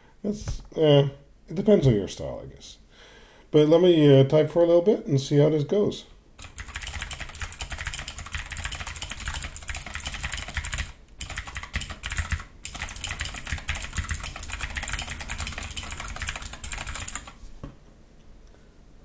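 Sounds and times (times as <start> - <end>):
mechanical keyboard clicks: 6.4 - 17.4.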